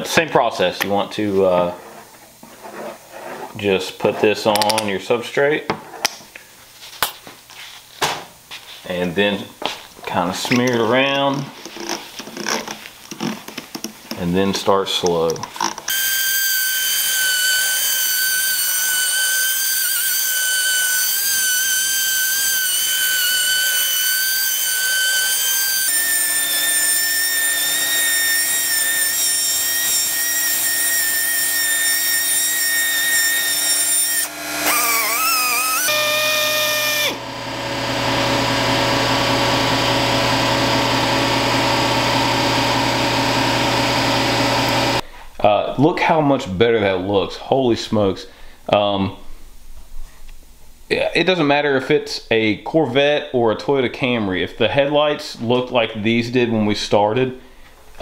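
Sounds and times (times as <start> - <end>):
rotary polisher whining: 15.9 - 45.0.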